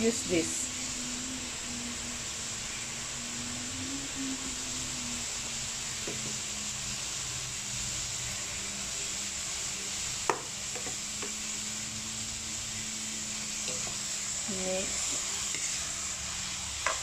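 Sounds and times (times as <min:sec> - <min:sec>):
vegetables sizzling in a pan: 0:00.0 - 0:17.0.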